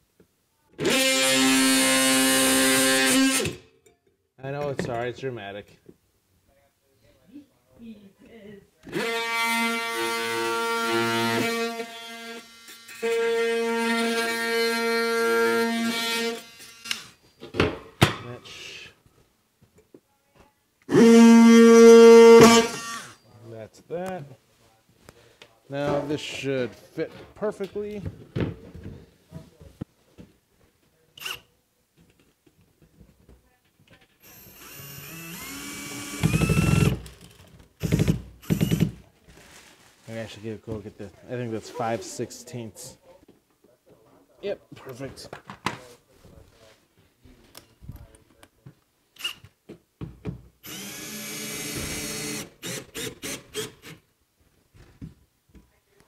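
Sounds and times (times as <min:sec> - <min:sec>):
oscillating multi-tool buzzing: 0:21.0 - 0:23.2, 0:34.2 - 0:37.0, 0:50.6 - 0:53.9
cordless screwdriver whining: 0:31.2 - 0:31.4, 0:34.2 - 0:38.9, 0:49.2 - 0:49.4, 0:50.6 - 0:54.0.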